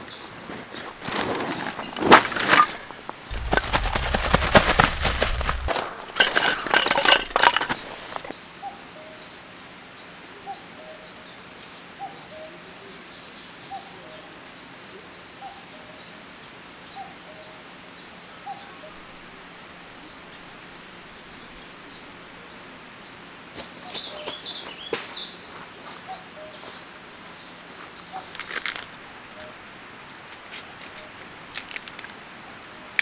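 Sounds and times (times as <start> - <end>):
canvas bag rustling and clattering: 0.5 - 8.3.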